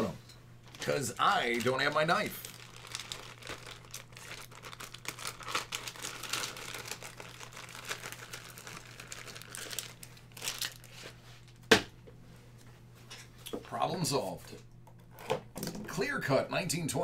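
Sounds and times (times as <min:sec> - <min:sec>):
plastic wrapping crinkling: 0:00.6 - 0:11.6.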